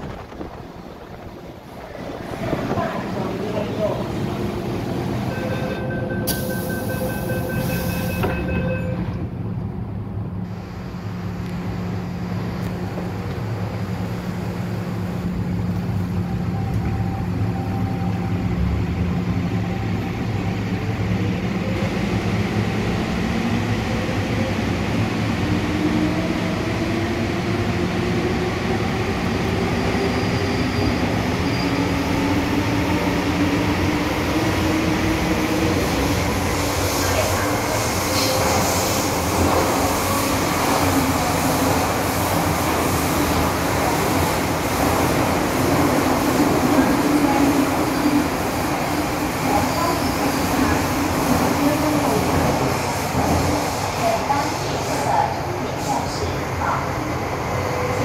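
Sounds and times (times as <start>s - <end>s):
train running hum: 0.0s - 58.0s
door-closing warning beeps: 5.3s - 9.2s.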